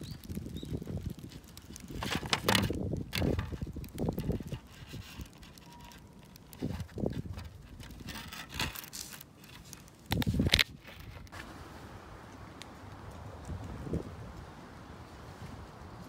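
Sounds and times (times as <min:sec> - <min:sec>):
wind on microphone: 0:00.0 - 0:05.4, 0:06.4 - 0:08.8, 0:10.0 - 0:11.4, 0:12.8 - 0:16.0.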